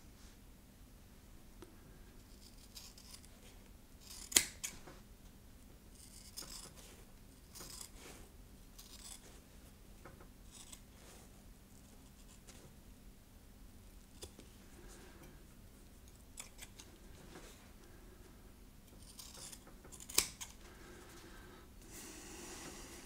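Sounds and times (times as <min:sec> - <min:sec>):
shears snipping foam: 0:04.0 - 0:04.8, 0:19.0 - 0:20.6.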